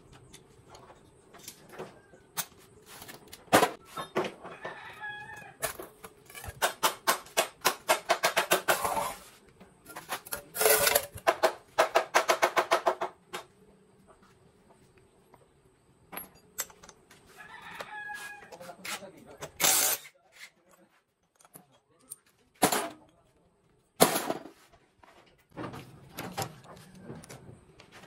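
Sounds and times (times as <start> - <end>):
rooster crowing: 4.5 - 5.6, 17.3 - 18.7.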